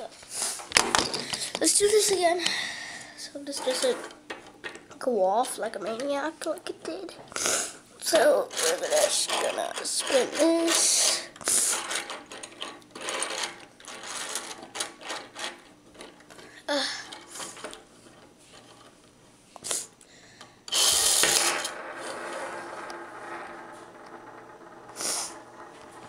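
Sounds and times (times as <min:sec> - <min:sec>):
spinning top on table: 0:03.4 - 0:06.1, 0:08.0 - 0:16.4, 0:20.7 - 0:26.0
plastic gears clicking and rattling: 0:03.5 - 0:05.0, 0:08.1 - 0:18.9, 0:20.7 - 0:21.8.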